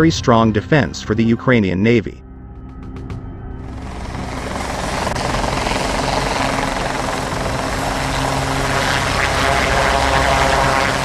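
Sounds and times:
helicopter hovering: 0:02.5 - 0:11.0.

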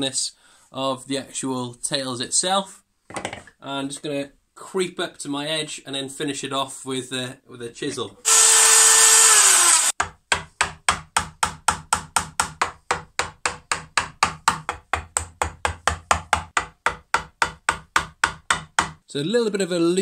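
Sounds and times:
mallet tapping a chisel: 0:10.0 - 0:19.0.

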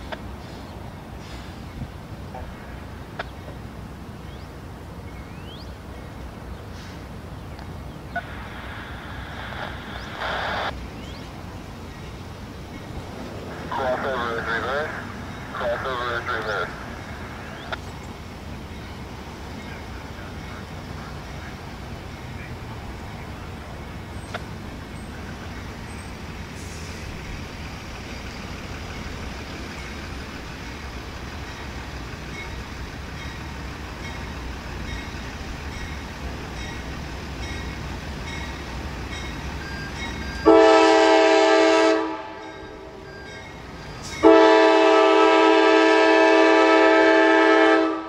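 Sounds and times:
diesel train rumble: 0:00.0 - 0:48.0
locomotive air horn: 0:40.4 - 0:43.0, 0:44.2 - 0:48.0.

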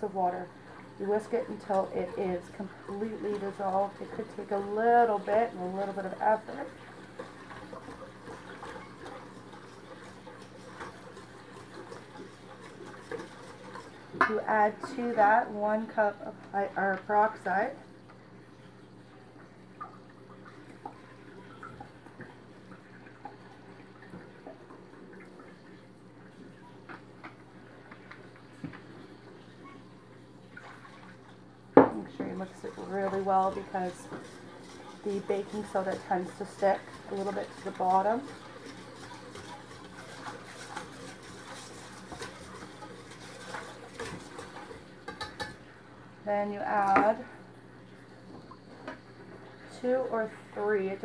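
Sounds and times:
whisk clicking in metal bowl: 0:01.1 - 0:15.1, 0:32.3 - 0:45.6.

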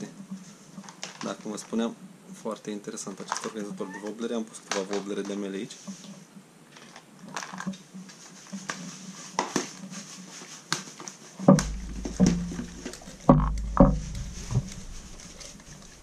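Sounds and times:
plastic box clicks and taps: 0:11.5 - 0:14.8
plastic box knocks and thumps: 0:11.5 - 0:16.0.

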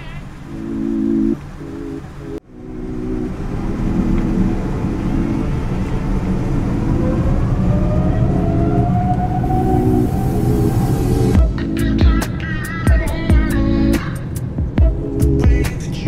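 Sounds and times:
jet engine whine: 0:00.0 - 0:11.4
jet engine rumble: 0:00.0 - 0:12.5
synth background music: 0:00.5 - 0:12.3.

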